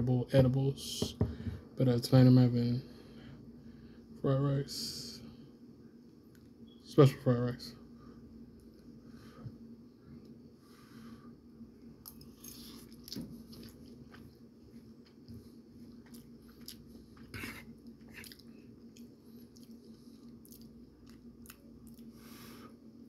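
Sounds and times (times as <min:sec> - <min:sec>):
steady low hum: 0:00.0 - 0:23.0
man chewing: 0:12.0 - 0:22.4.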